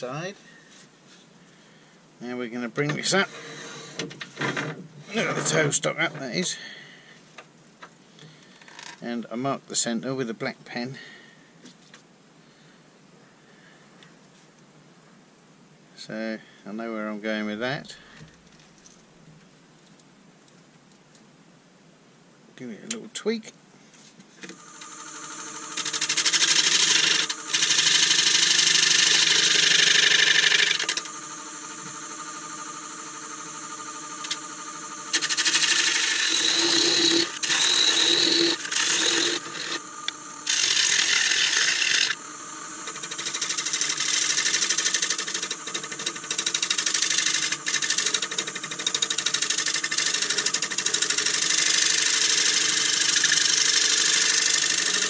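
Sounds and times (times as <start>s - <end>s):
lathe motor humming: 24.6s - 55.0s.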